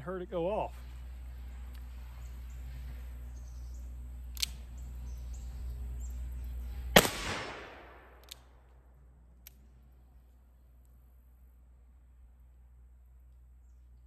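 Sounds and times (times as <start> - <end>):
birds chirping faintly: 0.0 - 7.0, 8.2 - 14.0
revolver clicks: 3.8 - 5.3, 8.1 - 8.8
revolver gunshot: 6.9 - 8.6.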